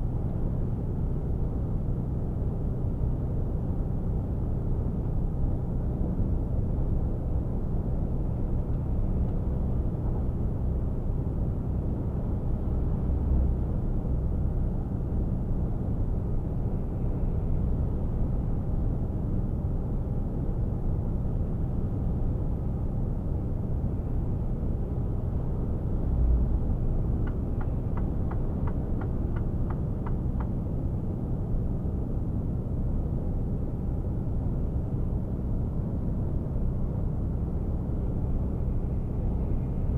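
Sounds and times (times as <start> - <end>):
road and tyre rumble: 0.0 - 39.9
light ticks: 27.2 - 30.6.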